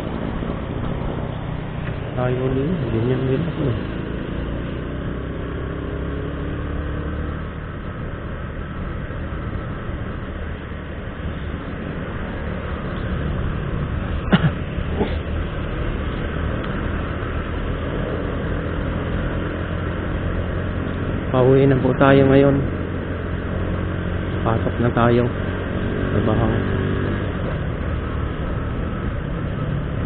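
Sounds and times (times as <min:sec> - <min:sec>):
motorcycle engine running: 0:00.0 - 0:30.0
wind and road noise: 0:00.0 - 0:30.0.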